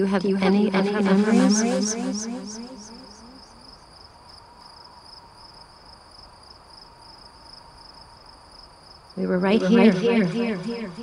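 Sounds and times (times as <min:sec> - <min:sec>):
insects chirring: 0:02.5 - 0:09.2.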